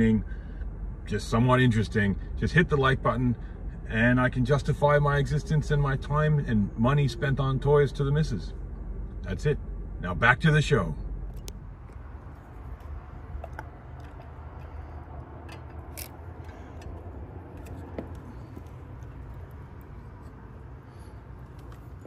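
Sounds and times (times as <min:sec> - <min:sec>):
low steady hum: 0:00.0 - 0:22.0
metal clicks and taps: 0:12.8 - 0:14.8, 0:15.4 - 0:19.2.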